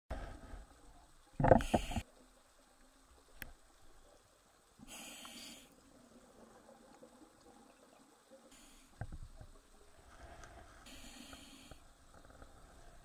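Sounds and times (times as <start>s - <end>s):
scuba regulator breath hiss: 1.6s - 2.0s, 4.8s - 5.8s, 10.8s - 11.9s.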